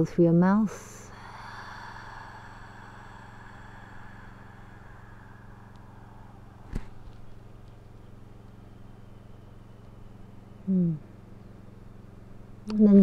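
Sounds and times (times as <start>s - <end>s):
low steady hum: 0.0s - 13.0s
slow exhale through the mouth: 1.1s - 7.1s.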